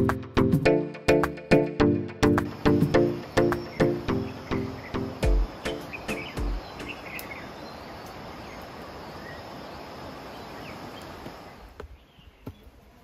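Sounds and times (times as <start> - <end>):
faint high insect drone: 1.9 - 12.2
even rushing hiss: 2.3 - 11.8
faint chirps: 2.5 - 13.0.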